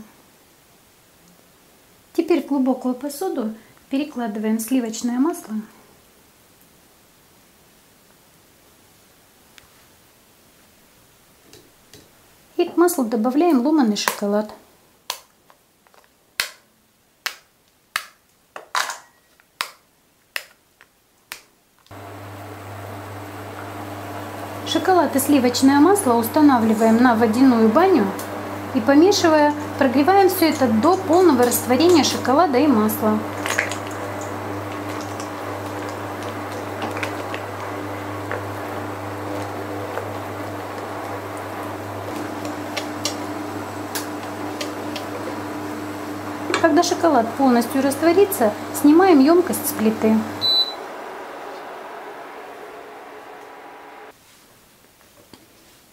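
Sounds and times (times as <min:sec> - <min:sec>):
chocolate snapping: 0:15.0 - 0:18.4, 0:19.5 - 0:21.6
low hum of induction hob: 0:21.9 - 0:54.1.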